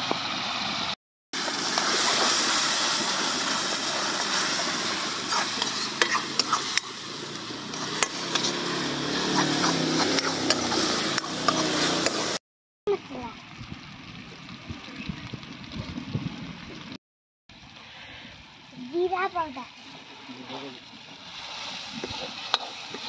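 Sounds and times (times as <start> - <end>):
food sizzling in a wok: 0.2 - 12.4, 18.9 - 23.0
ladle scraping and clinking on pan: 5.3 - 6.9, 7.8 - 8.7, 9.3 - 12.2, 22.0 - 23.0.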